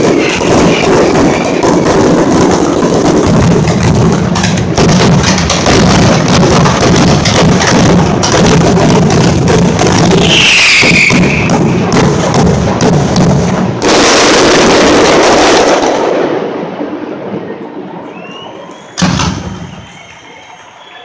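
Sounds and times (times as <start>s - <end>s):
high firework whistle: 0.0s - 2.8s, 9.8s - 11.8s, 18.0s - 21.0s
fireworks bangs and crackles: 0.0s - 21.0s.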